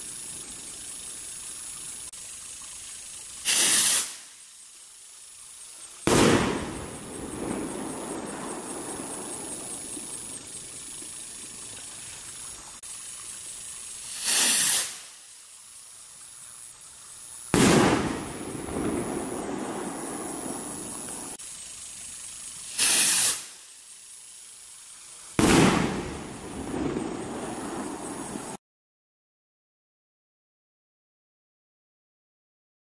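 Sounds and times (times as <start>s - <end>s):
firework rocket whoosh: 3.4s - 4.4s, 6.0s - 12.5s, 13.9s - 15.4s, 17.5s - 24.2s, 25.2s - 28.6s
firework bang: 6.0s - 10.2s, 17.5s - 21.4s, 25.4s - 28.6s.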